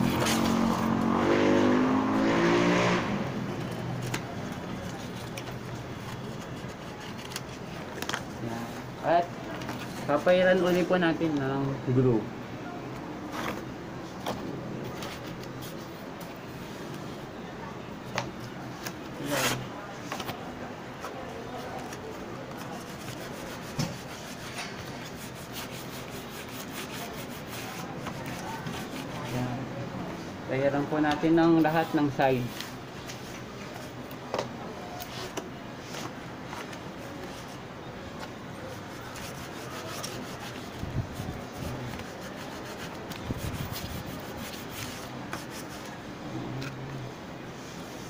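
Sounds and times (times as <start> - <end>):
rag rubbing on book cover: 22.6 - 29.4, 38.6 - 45.9.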